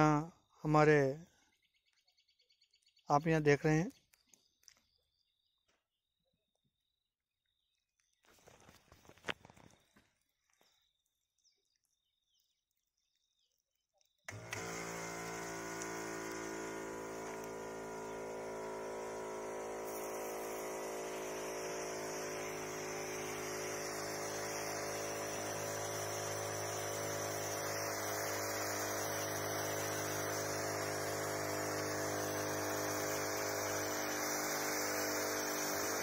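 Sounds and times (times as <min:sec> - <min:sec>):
electric pump hum: 0:14.3 - 0:36.0
spray gun hissing: 0:14.3 - 0:36.0.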